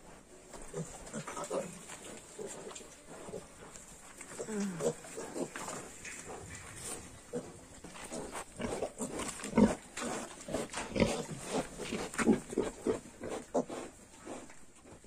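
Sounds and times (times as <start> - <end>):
pigs grunting: 4.3 - 14.4.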